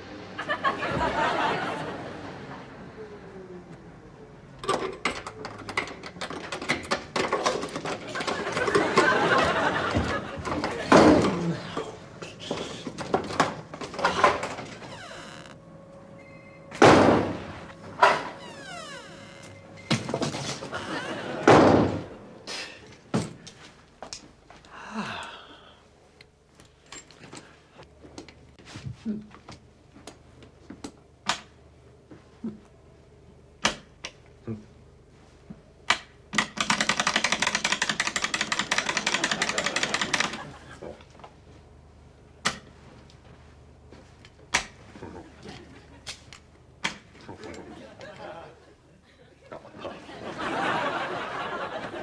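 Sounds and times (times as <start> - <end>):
wooden door slamming: 16.8 - 19.1, 21.4 - 22.1.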